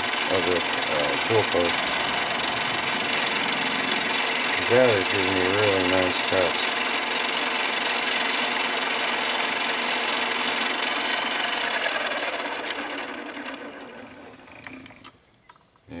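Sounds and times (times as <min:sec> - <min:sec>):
lathe cutting steel: 0:00.0 - 0:14.6
spindle winding down: 0:00.0 - 0:15.2.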